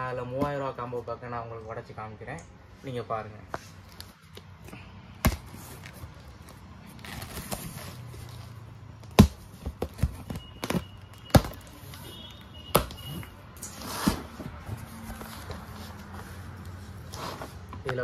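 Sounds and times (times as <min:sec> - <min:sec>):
packing tape peeling off cardboard: 0:05.3 - 0:09.2.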